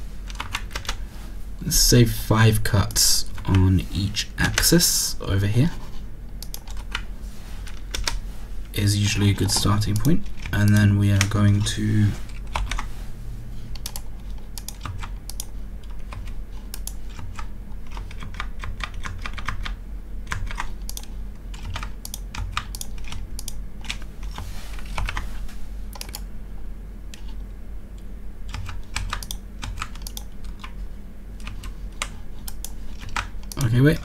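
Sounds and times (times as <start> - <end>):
steady low hum: 0.0 - 34.0
computer keyboard keys clicking: 0.3 - 1.0, 6.4 - 7.1, 7.7 - 8.2, 9.4 - 11.4, 12.3 - 12.9, 13.8 - 25.2, 25.9 - 26.3, 28.5 - 30.8, 31.4 - 34.0.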